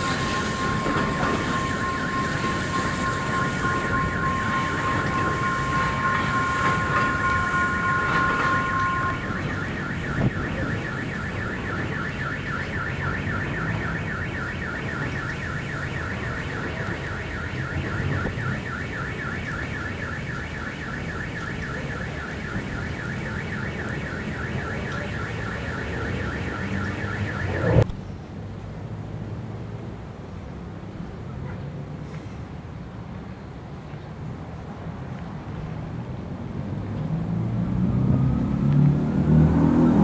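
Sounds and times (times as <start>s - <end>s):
level crossing bell ringing: 0.0s - 11.1s
road traffic rumbling: 0.0s - 40.0s.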